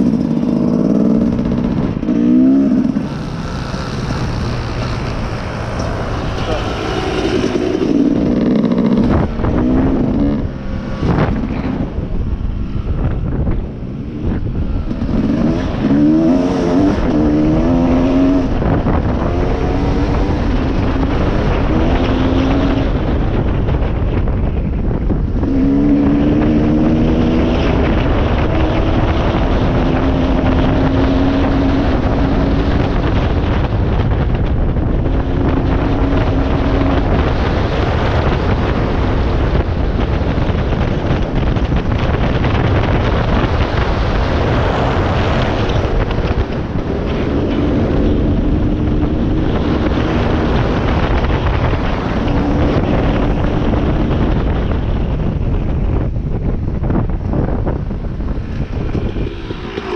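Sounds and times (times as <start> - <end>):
dirt bike engine revving: 0.0 - 23.0, 58.2 - 59.9
wind on microphone: 0.0 - 59.9.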